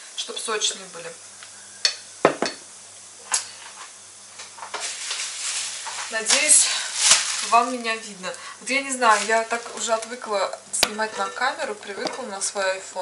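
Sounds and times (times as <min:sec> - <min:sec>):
rustling noise: 0:03.7 - 0:10.0.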